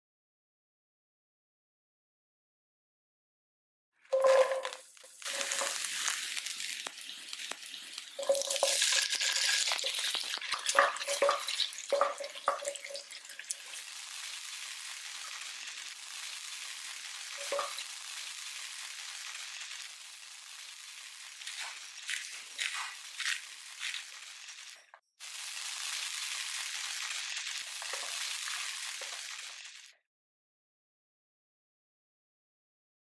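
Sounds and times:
food sizzling in hot oil: 0:04.1 - 0:30.0
spatula scraping a pan: 0:04.2 - 0:13.8, 0:21.0 - 0:24.8.

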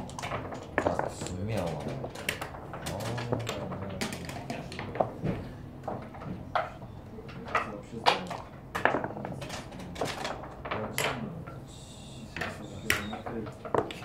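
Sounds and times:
checkers clacking on wooden board: 0:00.0 - 0:14.0.

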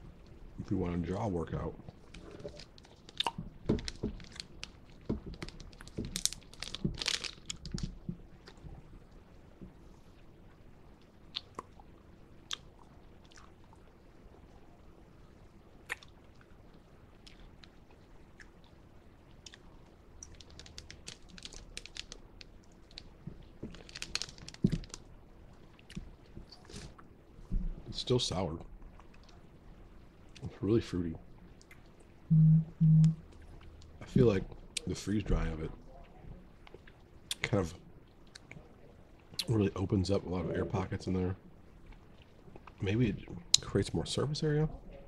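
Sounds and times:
plastic packet crinkling: 0:02.1 - 0:07.9, 0:20.2 - 0:25.0.

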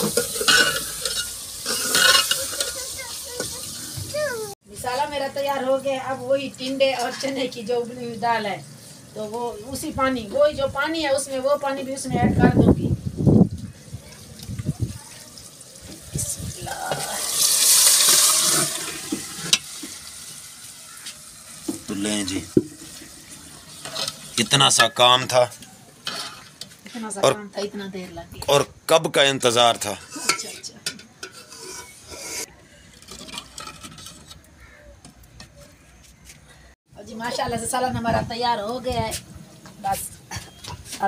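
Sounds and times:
metal spoon scraping a pot: 0:00.0 - 0:02.8, 0:23.7 - 0:25.2, 0:26.0 - 0:26.8, 0:29.8 - 0:34.6
liquid splashing and hissing into hot pot: 0:00.0 - 0:04.5, 0:13.8 - 0:24.6.

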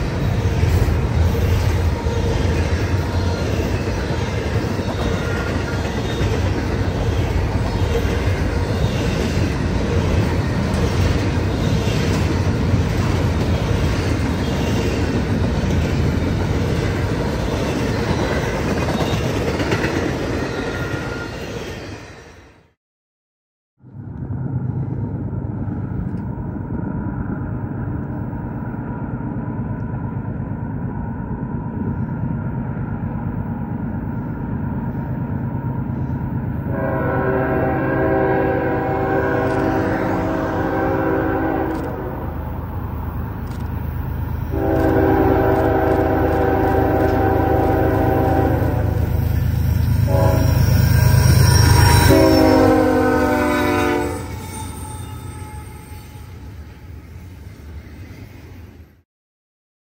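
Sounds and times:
diesel locomotives rumbling: 0:00.0 - 0:22.4, 0:23.8 - 0:59.0
locomotive air horn blasts: 0:36.7 - 0:42.2, 0:44.5 - 0:49.1, 0:50.0 - 0:56.4.

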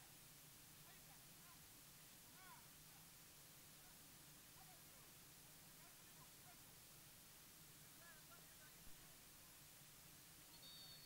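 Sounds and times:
faint steady hiss: 0:00.0 - 0:11.0
faint short chirp-like calls: 0:10.5 - 0:11.0.

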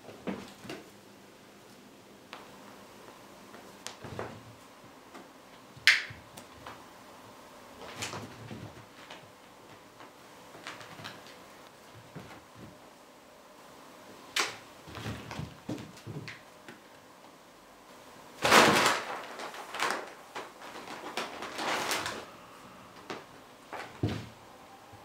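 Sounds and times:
paper bag rustling and crackling: 0:18.4 - 0:24.4.

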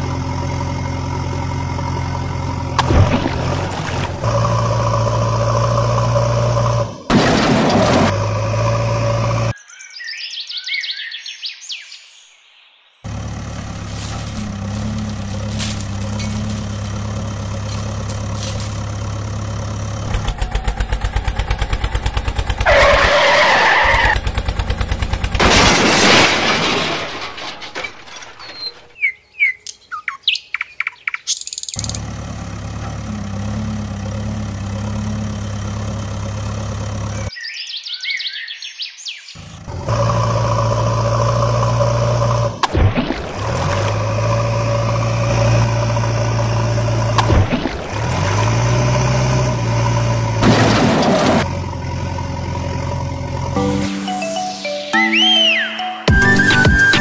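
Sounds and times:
engine drone: 0:00.0 - 0:09.6, 0:13.1 - 0:26.7, 0:31.8 - 0:37.3, 0:39.4 - 0:54.6
bird chirps: 0:09.6 - 0:13.1, 0:28.4 - 0:31.9, 0:37.1 - 0:39.4, 0:54.6 - 0:57.0
fast engine chugging: 0:20.0 - 0:25.5.

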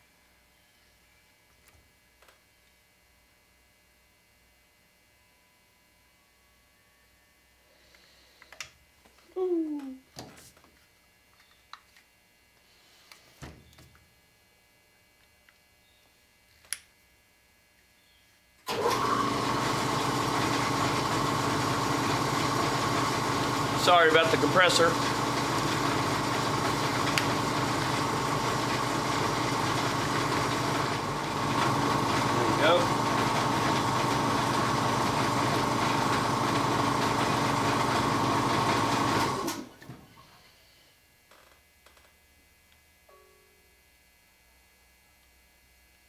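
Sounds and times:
air compressor running: 0:18.7 - 0:40.8.

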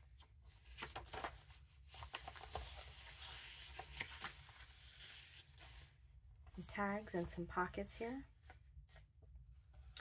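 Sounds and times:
paper pages turning: 0:00.1 - 0:06.0
pages flapping: 0:00.6 - 0:05.8.

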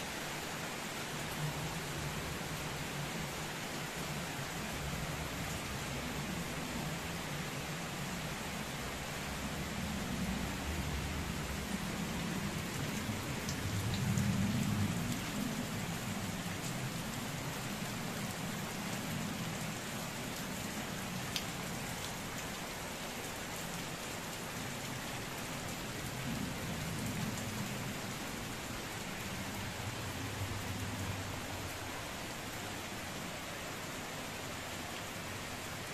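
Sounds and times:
heavy rain on leaves: 0:00.0 - 0:35.9.

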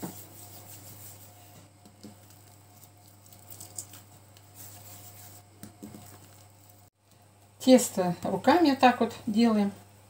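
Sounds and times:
hands patting dough: 0:00.0 - 0:06.9.

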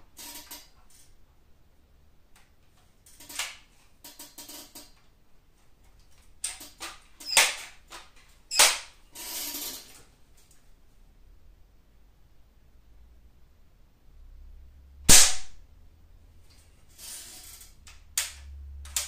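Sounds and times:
air rifle cracks: 0:15.1 - 0:15.6.

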